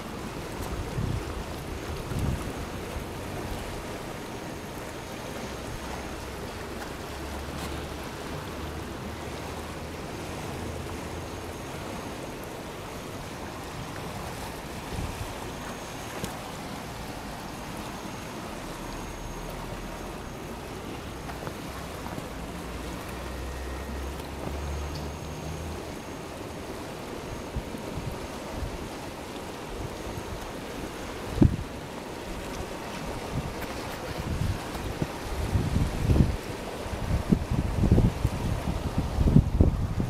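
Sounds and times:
fast-flowing river rushing: 0:00.0 - 0:40.0
wind gusting on microphone: 0:00.6 - 0:04.0, 0:31.2 - 0:31.9, 0:32.6 - 0:40.0.

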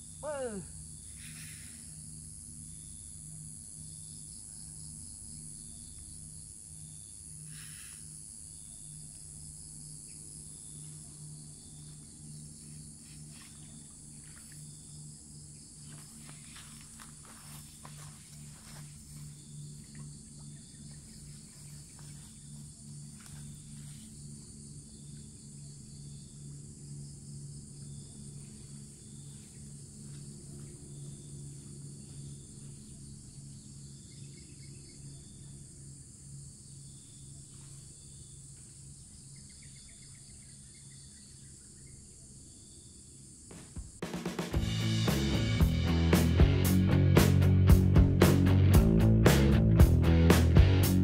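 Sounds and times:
low pulsing hum: 0:00.0 - 0:42.7, 0:44.6 - 0:51.0
insects chirring: 0:00.0 - 0:44.6
guitar music: 0:44.6 - 0:51.0.

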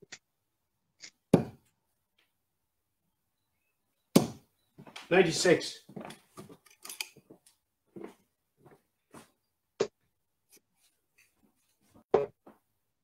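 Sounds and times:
darts thudding into dartboard: 0:04.1 - 0:04.5.

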